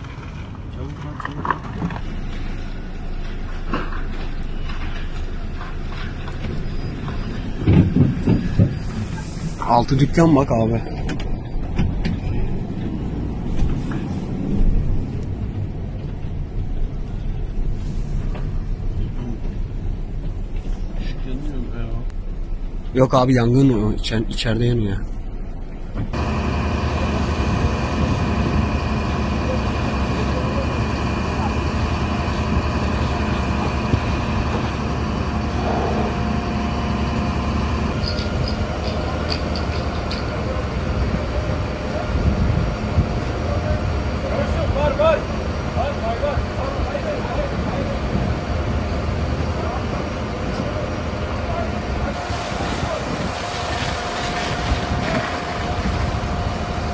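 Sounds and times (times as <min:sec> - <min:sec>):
fire engines rumbling: 0:00.0 - 0:56.9
water spraying from hoses: 0:26.2 - 0:56.9.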